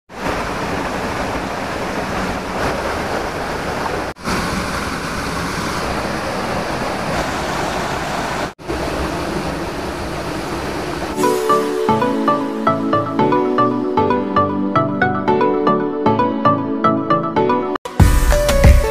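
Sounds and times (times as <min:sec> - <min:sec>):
waterfall rushing: 0:00.1 - 0:13.4.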